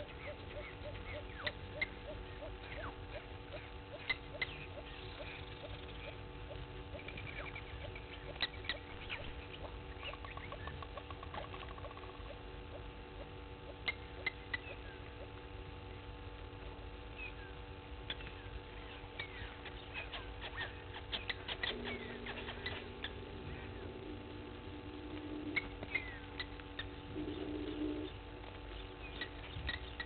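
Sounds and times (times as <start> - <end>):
birds chirping and whistling: 0.0 - 15.2, 17.1 - 30.0
steady low hum: 0.0 - 30.0
rapid even trill: 21.6 - 28.1.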